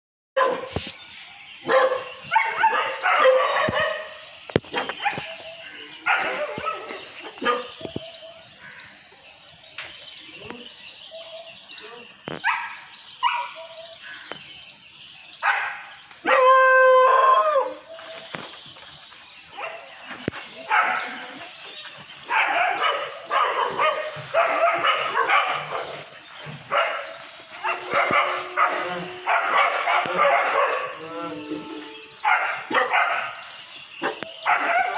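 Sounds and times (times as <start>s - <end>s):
dogs barking and yelping: 0.4s - 0.8s, 1.6s - 8.6s, 12.3s - 14.0s, 15.4s - 18.5s, 19.5s - 34.9s.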